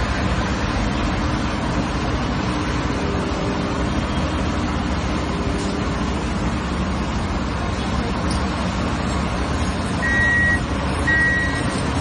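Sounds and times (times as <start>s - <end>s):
loader engine running: 0.0s - 12.0s.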